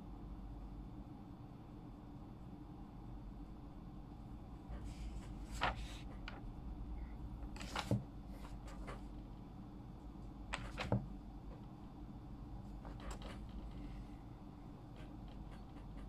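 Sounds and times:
low steady hum: 0.0s - 16.0s
paper rustling: 4.8s - 6.4s, 7.5s - 9.1s, 10.5s - 11.0s.

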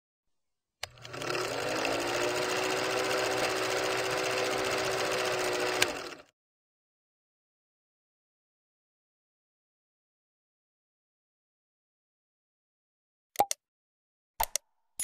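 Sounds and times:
film projector clattering: 0.8s - 6.3s
projector motor hum: 0.8s - 6.3s.

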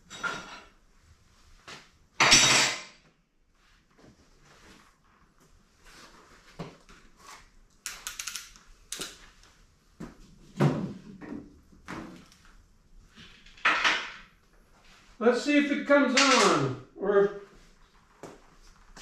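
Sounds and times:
scrap metal and tools clattering: 0.0s - 0.8s.

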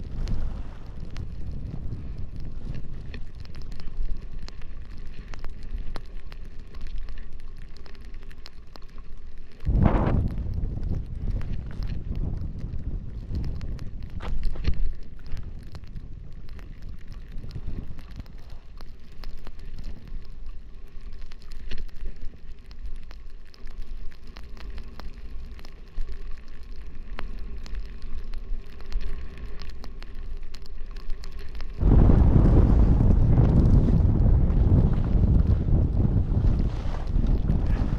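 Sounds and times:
wind buffeting microphone: 0.0s - 3.6s, 9.6s - 18.6s, 31.8s - 37.9s
skis scraping over snow: 0.0s - 4.8s, 31.7s - 37.9s.

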